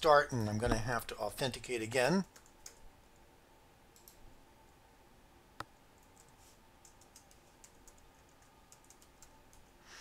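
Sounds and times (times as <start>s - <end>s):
faint keyboard typing: 2.2s - 3.3s, 3.9s - 4.8s, 5.6s - 9.8s.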